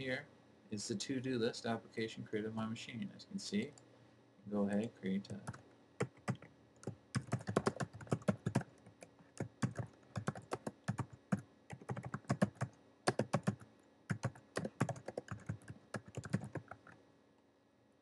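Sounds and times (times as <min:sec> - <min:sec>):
typing on computer keyboard: 0:05.4 - 0:17.0.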